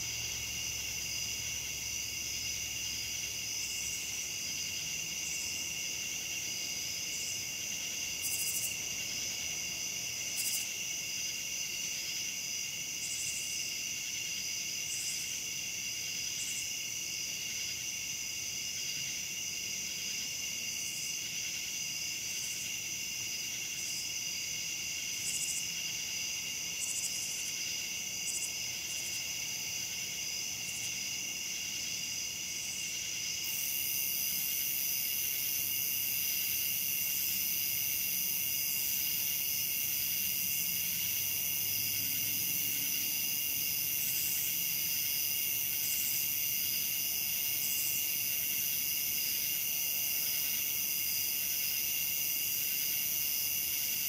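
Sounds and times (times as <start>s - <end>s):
crickets and katydids trilling: 0.0s - 54.0s.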